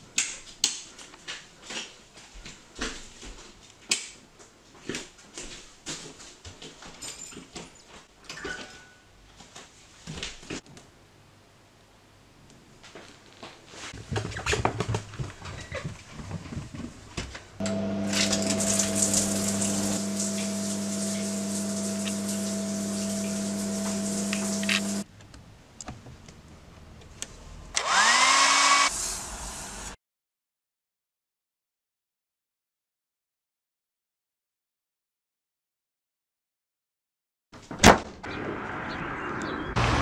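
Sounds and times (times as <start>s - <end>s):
rustles and small knocks: 12.8s - 17.6s
hair dryer running: 17.6s - 25.0s, 27.8s - 30.0s.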